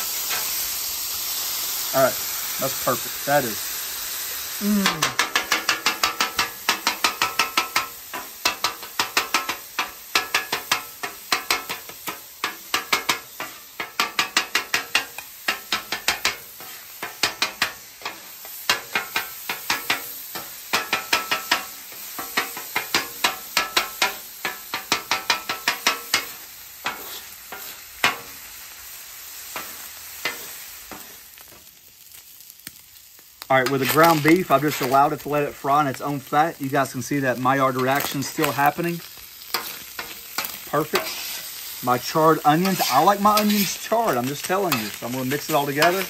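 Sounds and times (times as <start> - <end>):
beef sizzling: 0.0 - 46.0
metal scraper clacking on griddle: 4.8 - 28.3, 39.5 - 41.5, 42.5 - 46.0.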